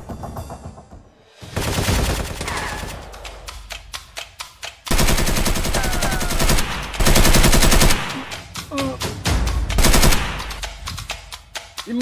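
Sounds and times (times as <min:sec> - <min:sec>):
machine-gun fire: 0:04.9 - 0:08.3, 0:09.8 - 0:10.6.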